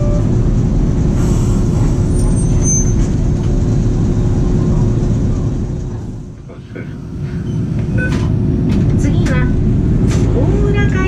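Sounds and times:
tram wheels rumbling: 0.0s - 11.0s
faint high squeal: 2.1s - 3.1s
constant hum: 3.0s - 11.0s.

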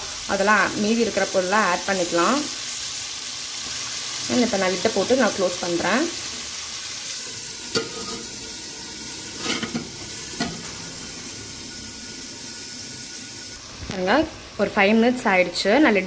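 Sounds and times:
chicken sizzling in a pan: 0.0s - 16.0s.

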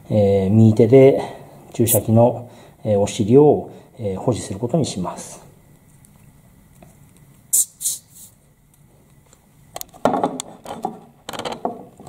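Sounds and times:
short hisses: 7.5s - 8.4s.

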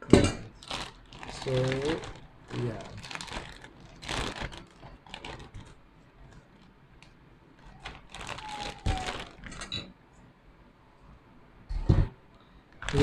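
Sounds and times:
plastic bag crinkling: 0.5s - 6.7s, 7.6s - 9.7s, 12.8s - 13.0s.

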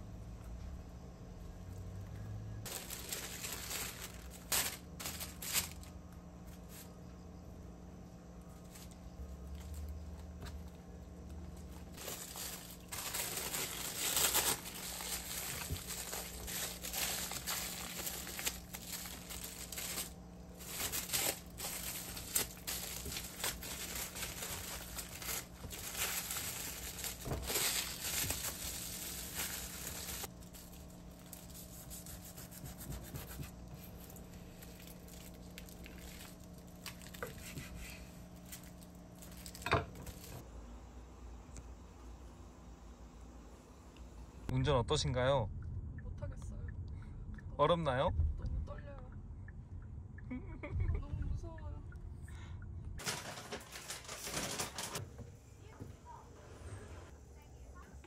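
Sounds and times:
faint steady hum: 0.0s - 58.0s
plastic bag crinkling: 2.6s - 6.8s, 8.4s - 32.5s, 33.6s - 40.4s, 53.0s - 55.0s.

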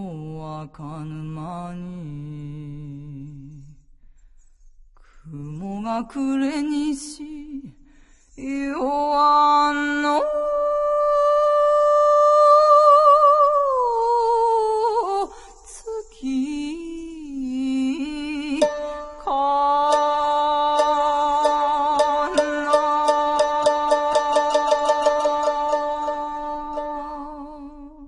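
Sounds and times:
woman singing with vibrato: 8.4s - 28.0s
shamisen plucking: 18.4s - 28.0s.

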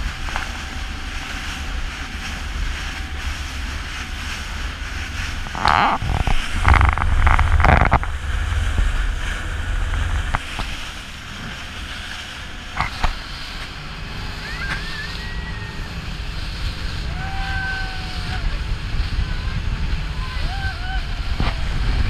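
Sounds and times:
motorboat engine rumble: 0.0s - 22.0s
water rushing past hull: 0.0s - 22.0s
wind: 0.0s - 22.0s.

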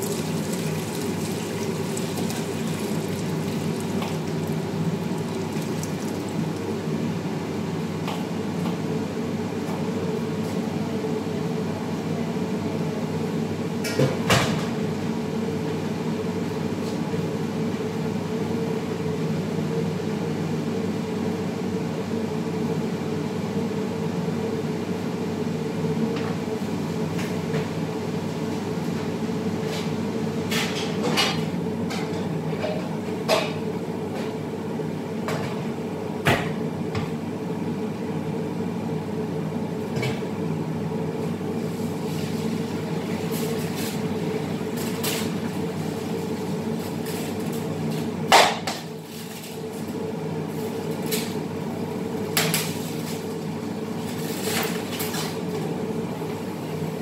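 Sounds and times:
extractor fan humming: 0.0s - 8.5s.

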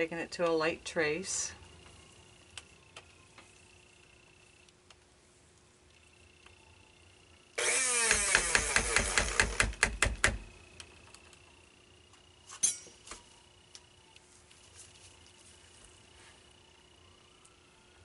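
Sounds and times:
stick blender running: 7.6s - 9.8s.

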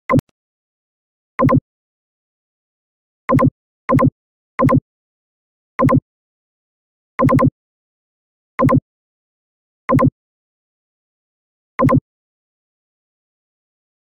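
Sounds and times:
electronic double pop blips: 1.4s - 1.6s, 3.3s - 4.8s, 5.8s - 6.0s, 7.2s - 7.5s, 11.8s - 12.0s.

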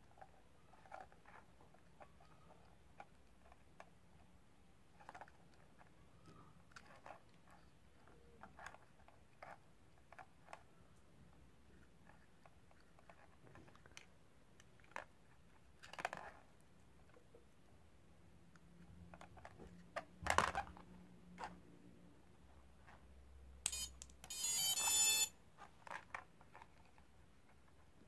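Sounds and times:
electronic beep tones: 23.7s - 25.3s.

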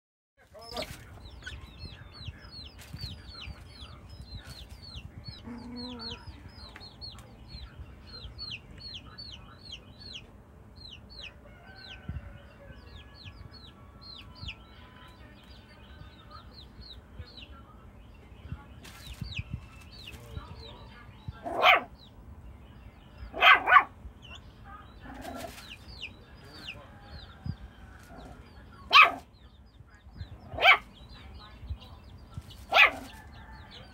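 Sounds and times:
chicks peeping: 0.4s - 33.9s
puppy barking: 21.4s - 22.0s, 23.3s - 24.0s, 28.8s - 29.3s, 30.4s - 31.0s, 32.7s - 33.1s.

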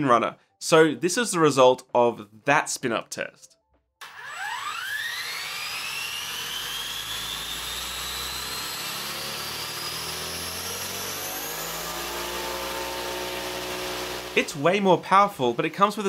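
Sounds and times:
motor whine rising in pitch: 4.0s - 16.0s.

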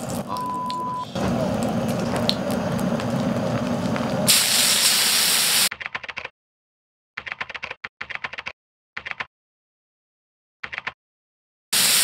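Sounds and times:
food sizzling in hot wok: 1.2s - 5.7s, 11.8s - 12.0s.

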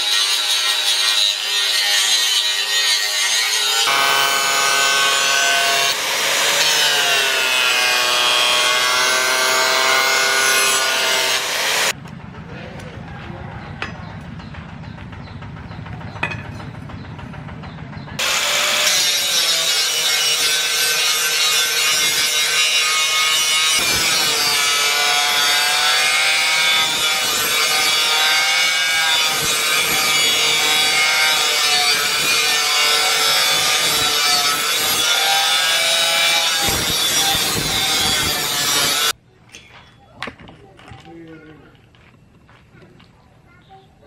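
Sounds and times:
angle grinder grinding steel: 0.0s - 12.0s, 18.2s - 39.2s.

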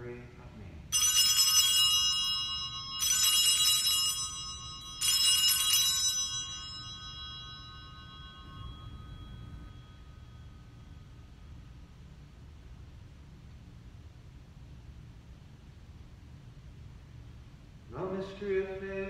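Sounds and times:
altar bells ringing: 0.9s - 11.7s.

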